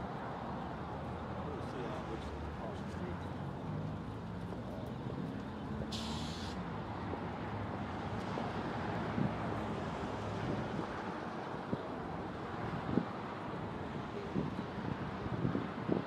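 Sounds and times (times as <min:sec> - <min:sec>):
brief hiss: 0:05.9 - 0:06.6.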